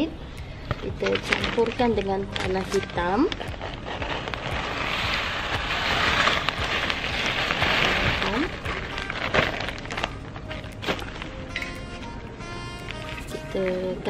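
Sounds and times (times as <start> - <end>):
soil pouring: 3.4 - 10.1.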